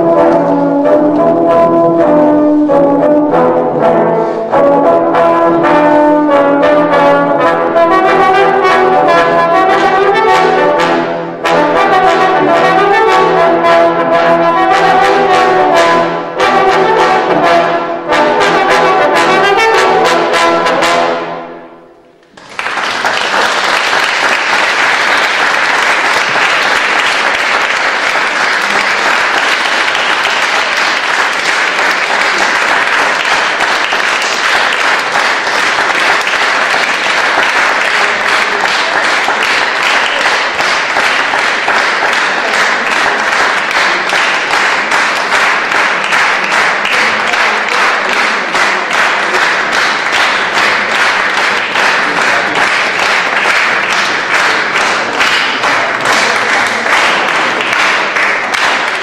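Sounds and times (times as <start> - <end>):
trombone quartet chord: 0.0 - 22.1
audience applause: 22.3 - 59.0.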